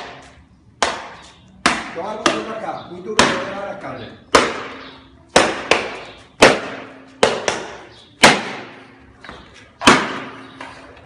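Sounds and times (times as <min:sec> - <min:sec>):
baton striking hard armor plates: 0:04.3 - 0:08.9, 0:09.8 - 0:10.4.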